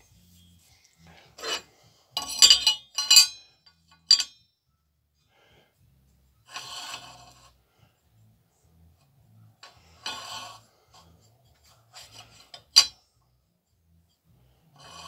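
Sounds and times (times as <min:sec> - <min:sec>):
metal scraping rub: 0:00.0 - 0:03.5, 0:06.4 - 0:07.6, 0:09.6 - 0:13.0, 0:14.6 - 0:15.0
metal engine parts clinking: 0:01.4 - 0:04.4, 0:11.6 - 0:13.0.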